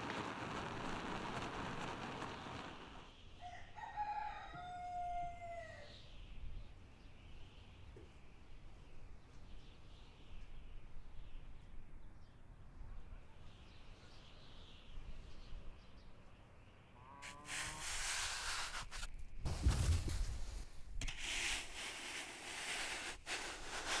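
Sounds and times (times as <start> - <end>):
faint outdoor background: 0.0 - 24.0
snow shovel scraping snow: 17.2 - 24.0.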